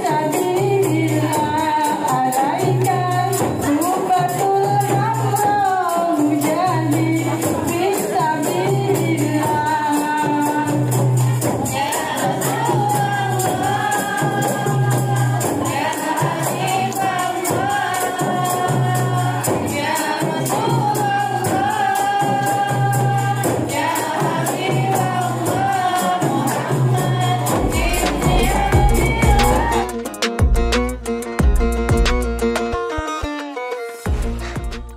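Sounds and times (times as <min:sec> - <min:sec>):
women singing together: 0:00.0 - 0:29.9
tambourines jingling: 0:00.0 - 0:30.0
low bass line: 0:27.6 - 0:32.8, 0:34.1 - 0:34.9.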